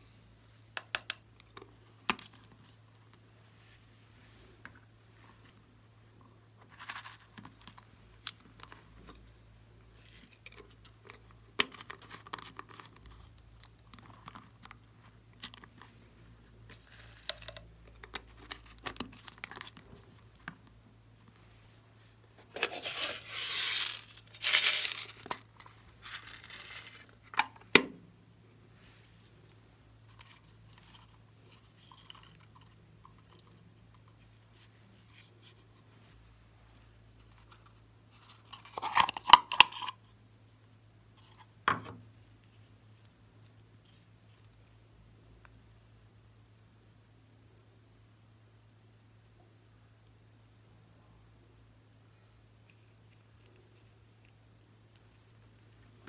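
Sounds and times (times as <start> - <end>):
plastic scraping: 22.4 - 27.2.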